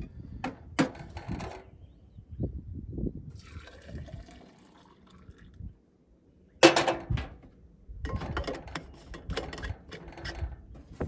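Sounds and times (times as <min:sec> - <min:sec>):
water pouring into mug: 0:03.3 - 0:05.6.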